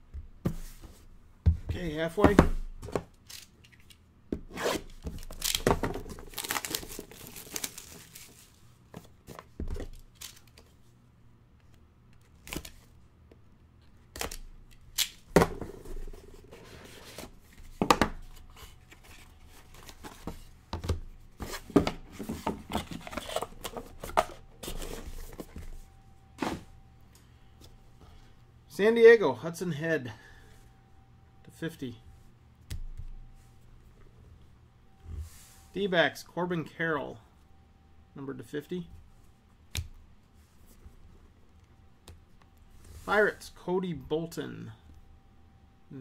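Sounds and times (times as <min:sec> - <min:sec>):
wrapping tearing and crinkling: 0:06.2 - 0:08.6.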